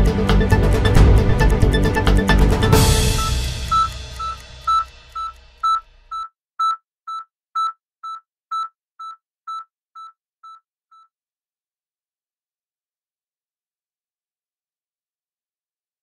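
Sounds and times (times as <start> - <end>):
closing music: 0.0 - 6.1
short high beeps: 3.1 - 11.1.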